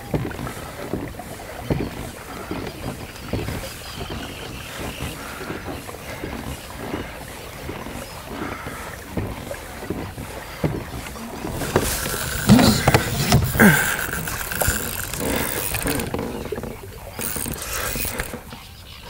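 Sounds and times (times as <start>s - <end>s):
knocks on a kayak: 10.6s - 16.3s.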